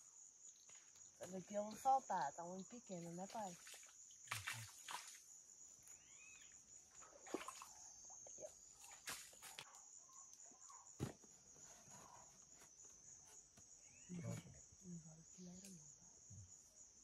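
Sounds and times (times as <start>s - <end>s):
insects chirring: 0.0s - 17.0s.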